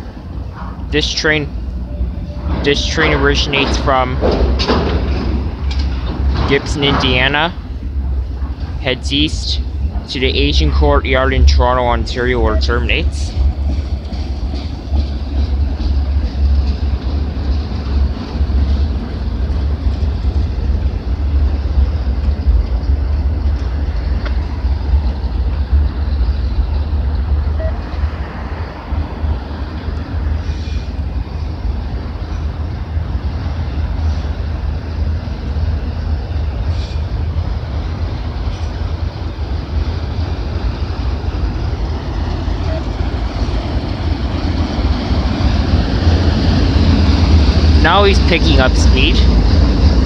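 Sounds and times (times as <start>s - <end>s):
freight train rumbling past: 0.0s - 50.0s.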